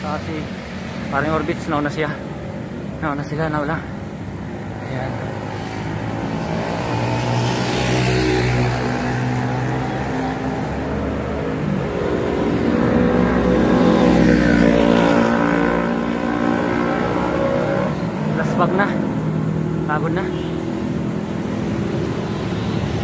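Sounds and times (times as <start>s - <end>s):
vehicles passing on road: 0.0s - 23.0s.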